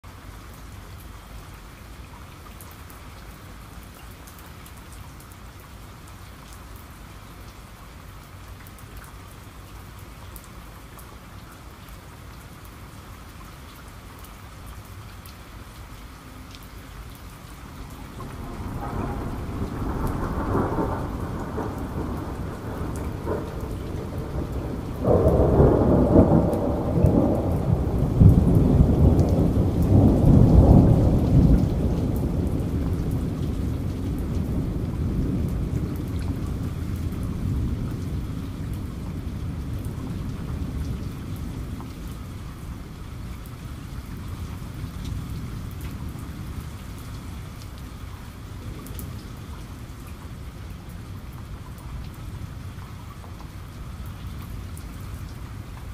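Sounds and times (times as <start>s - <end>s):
steady rain: 0.0s - 55.9s
thunder rolling: 17.8s - 41.7s.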